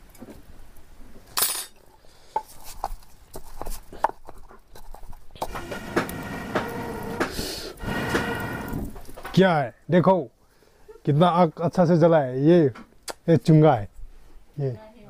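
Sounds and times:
scraping noise: 0:05.4 - 0:09.3.

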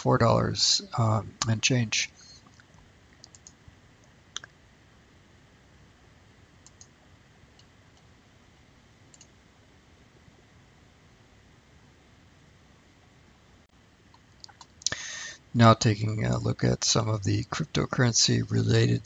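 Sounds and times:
low hiss: 0:00.0 - 0:19.0
faint computer mouse clicks: 0:03.2 - 0:03.6, 0:06.6 - 0:06.9, 0:09.1 - 0:09.3.

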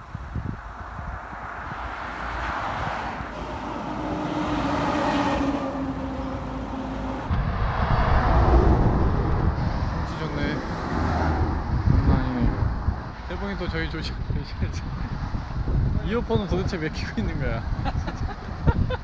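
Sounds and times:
vehicle passing: 0:00.8 - 0:13.2
heavy lorry rumbling past: 0:02.0 - 0:13.2.

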